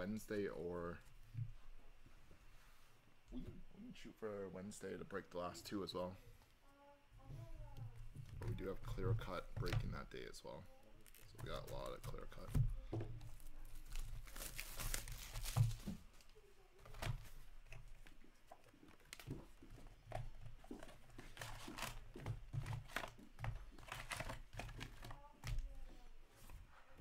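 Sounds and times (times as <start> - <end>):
foil packs crinkling: 13.3 - 16.0.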